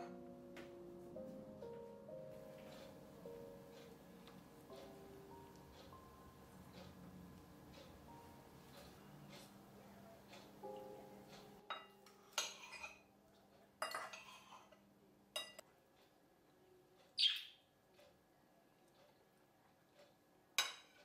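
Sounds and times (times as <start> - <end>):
cutlery clinking on bowl: 10.3 - 13.1, 13.8 - 14.8, 20.6 - 21.0.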